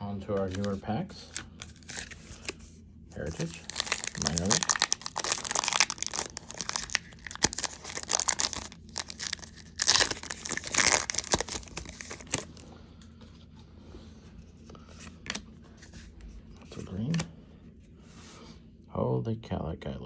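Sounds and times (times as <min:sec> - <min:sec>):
card pack wrapper crinkling: 0:00.4 - 0:02.6, 0:03.2 - 0:12.6.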